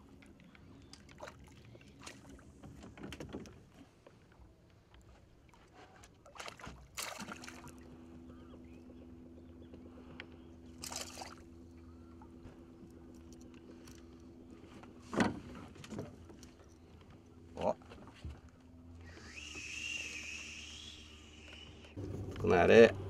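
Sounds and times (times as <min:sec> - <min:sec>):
fish splashing at water surface: 0:06.3 - 0:07.7, 0:10.8 - 0:11.4
electric motor humming: 0:18.9 - 0:23.0.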